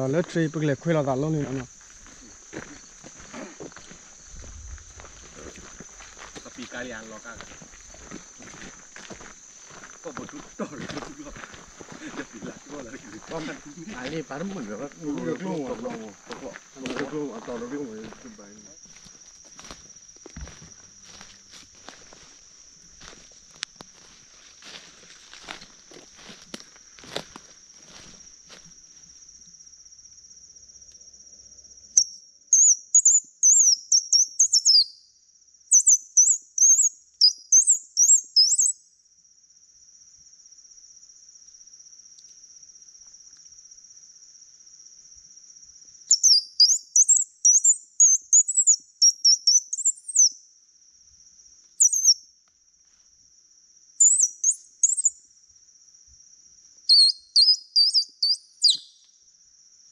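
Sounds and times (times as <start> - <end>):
high-pitched insect drone: 0.0 - 59.9
bird singing rapid high chirps: 32.0 - 35.1, 35.7 - 38.8, 46.1 - 50.4, 51.8 - 52.2, 54.0 - 55.2, 56.9 - 59.0.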